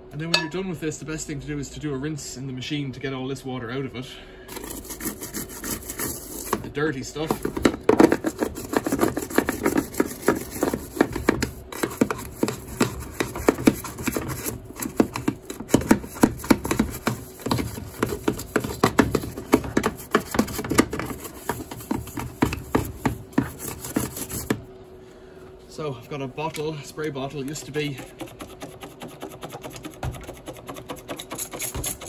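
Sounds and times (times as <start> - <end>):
brush scrubbing plastic: 4.5 - 24.6, 27.2 - 32.0.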